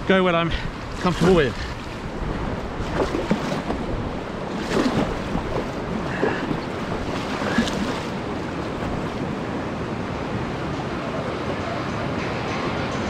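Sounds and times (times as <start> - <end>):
rushing water: 0.4 - 10.6
wind on microphone: 0.8 - 9.8
paddle strokes in water: 0.9 - 9.5.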